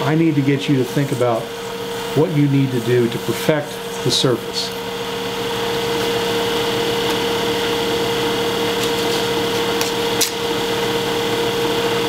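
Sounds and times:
wood lathe motor humming: 0.0 - 12.0.

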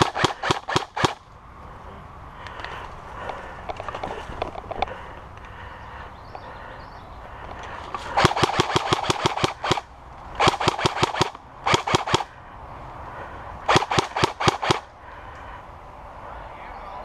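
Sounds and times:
airsoft gun firing bursts: 0.0 - 1.2, 8.2 - 12.3, 13.7 - 14.9.

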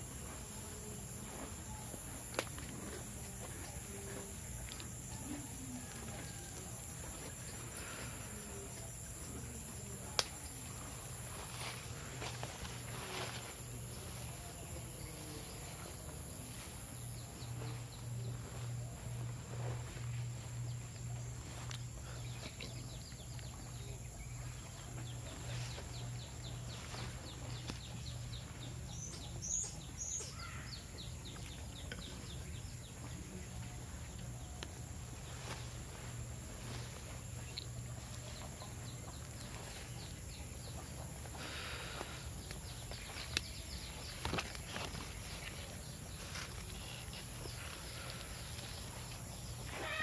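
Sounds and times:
low steady hum: 0.0 - 49.8
higher bird calls: 49.5 - 50.0.

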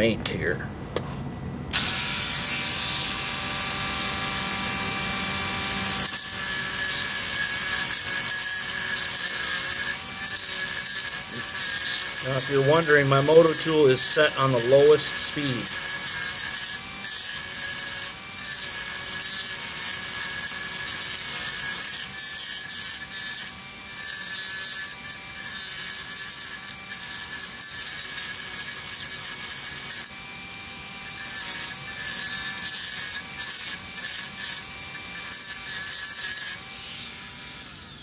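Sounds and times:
rotary tool grinding metal: 1.8 - 38.0.

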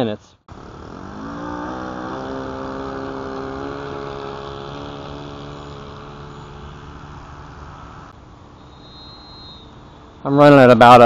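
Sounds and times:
model plane engine at high throttle: 0.5 - 8.1.

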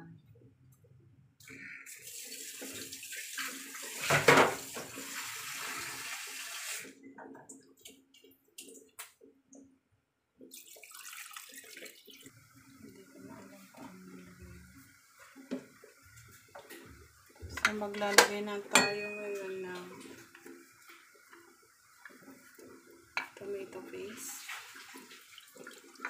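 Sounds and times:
liquid hissing in cooking pan: 1.9 - 6.9.

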